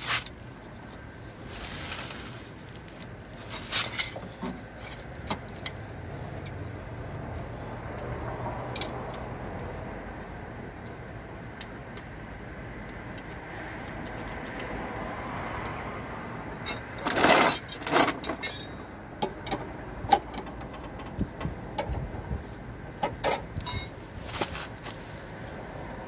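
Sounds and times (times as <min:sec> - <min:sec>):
steady background noise: 0:00.0 - 0:26.0
car jack metal clanks: 0:16.6 - 0:22.1, 0:23.0 - 0:24.0.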